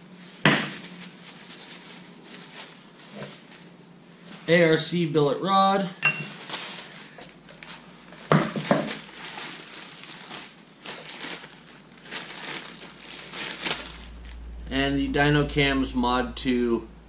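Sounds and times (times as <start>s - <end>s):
packaging rustling and crinkling: 0.1s - 4.5s, 6.3s - 14.4s.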